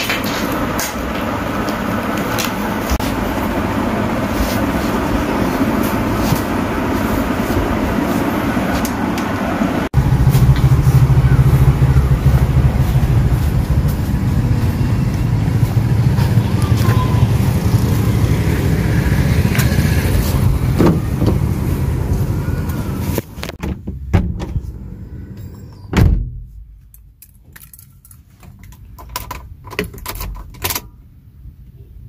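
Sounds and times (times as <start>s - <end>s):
car door shutting: 20.7s - 21.5s
keys jingling: 27.2s - 30.8s.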